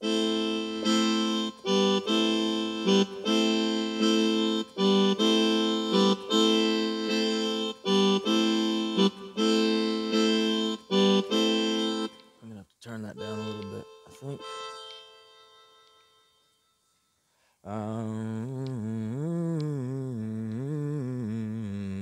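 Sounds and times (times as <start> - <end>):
electronic keyboard chords: 0.0 - 12.4, 13.2 - 16.4.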